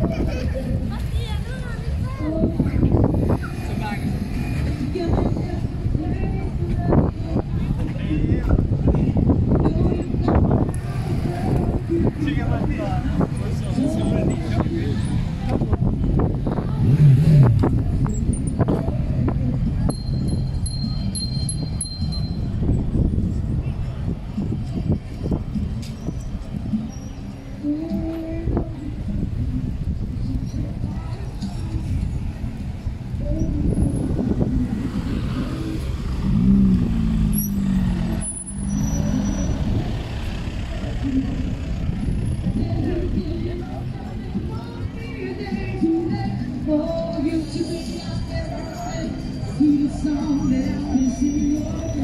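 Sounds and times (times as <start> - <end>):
low street rumble: 0.0 - 52.0
high ringing tone with chimes: 19.9 - 22.6.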